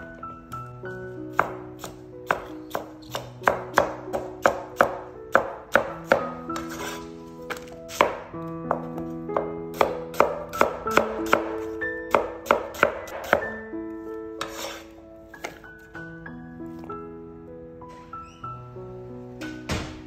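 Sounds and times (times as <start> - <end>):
background music with held notes: 0.0 - 20.0
cleaver chopping on plastic board: 1.4 - 8.2, 9.7 - 13.5.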